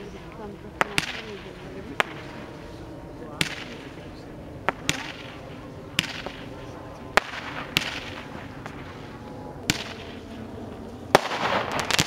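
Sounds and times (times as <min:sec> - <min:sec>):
firework bangs: 0:00.7 - 0:02.4, 0:03.4 - 0:10.5, 0:11.1 - 0:12.0.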